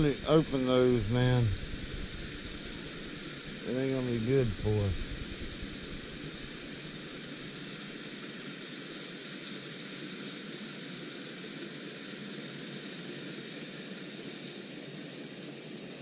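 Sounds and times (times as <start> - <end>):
water rushing at a dam: 0.0 - 16.0.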